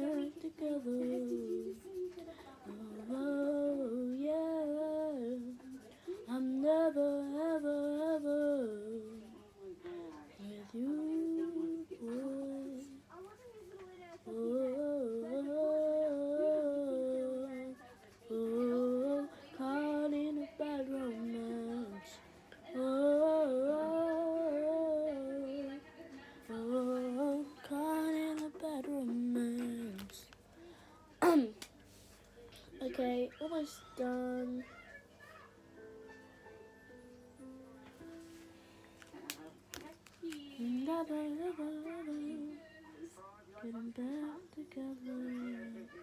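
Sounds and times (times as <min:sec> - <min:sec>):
child singing: 0:00.0 - 0:09.3, 0:10.4 - 0:13.3, 0:14.2 - 0:25.8, 0:26.5 - 0:30.3, 0:32.8 - 0:35.0, 0:40.2 - 0:42.6, 0:43.7 - 0:46.0.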